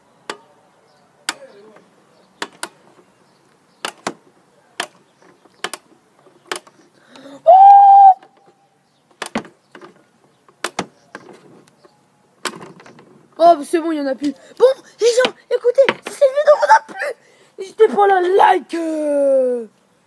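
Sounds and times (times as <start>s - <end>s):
plastic crank clicking: 4.8s - 7.2s
person crying ooh: 7.3s - 8.3s, 16.3s - 17.2s.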